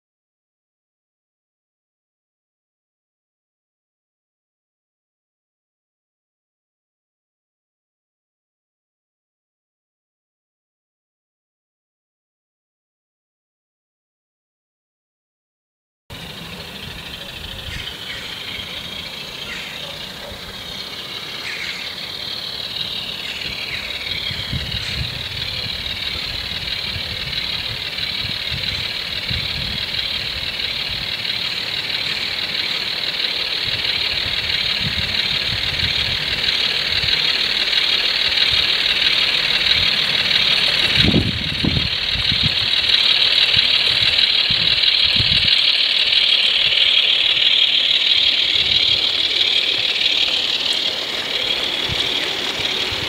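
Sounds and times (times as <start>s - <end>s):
model train diesel engine sound: 16.1s - 53.0s.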